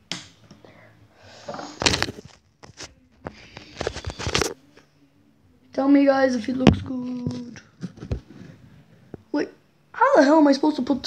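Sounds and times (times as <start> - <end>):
phone handling rustling and scraping: 1.5 - 4.6.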